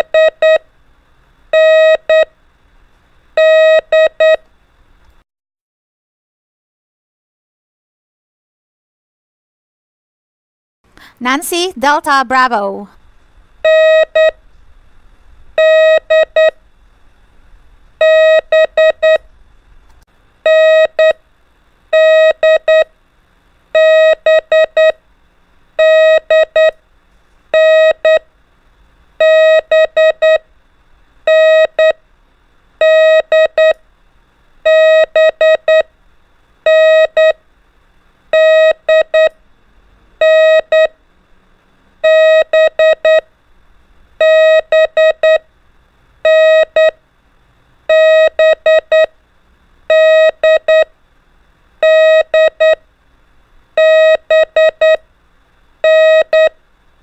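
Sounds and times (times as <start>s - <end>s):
morse code beeps: 0.0s - 0.6s, 1.6s - 2.3s, 3.4s - 4.4s, 13.6s - 14.4s, 15.6s - 16.6s, 18.0s - 19.2s, 20.5s - 21.2s, 22.0s - 22.9s, 23.8s - 25.0s, 25.8s - 26.8s, 27.6s - 28.2s, 29.2s - 30.4s, 31.3s - 32.0s, 32.8s - 33.8s, 34.7s - 35.9s, 36.7s - 37.4s, 38.4s - 39.3s, 40.2s - 40.9s, 42.0s - 43.2s, 44.2s - 45.4s, 46.2s - 47.0s, 47.9s - 49.1s, 49.9s - 50.9s, 51.8s - 52.8s, 53.8s - 55.0s, 55.8s - 56.6s.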